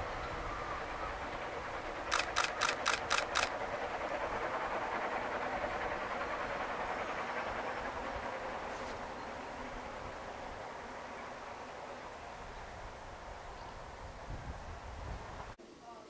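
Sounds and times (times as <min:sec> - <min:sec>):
distant steam train running: 0:00.0 - 0:15.6
sharp clicks: 0:02.1 - 0:03.6.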